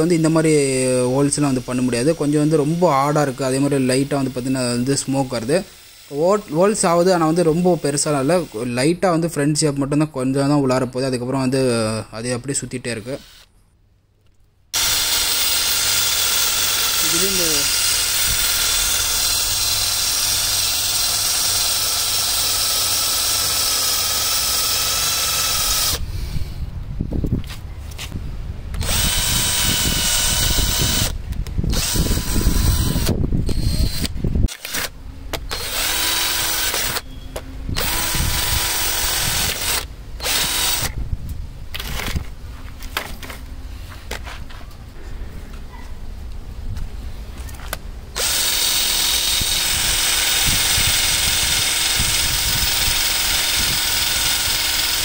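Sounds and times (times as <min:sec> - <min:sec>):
cordless drill grinding into wood: 0:00.0 - 0:08.7, 0:13.0 - 0:13.5, 0:14.8 - 0:26.1, 0:28.8 - 0:37.0, 0:37.7 - 0:40.9, 0:48.2 - 0:55.0.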